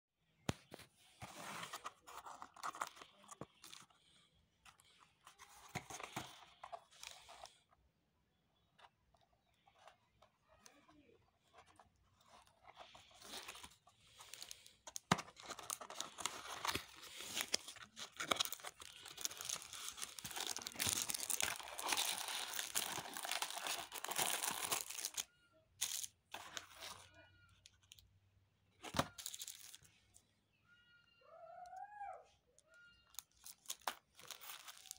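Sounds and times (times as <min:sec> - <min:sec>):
paper mailer tearing and crinkling: 0:12.8 - 0:25.2.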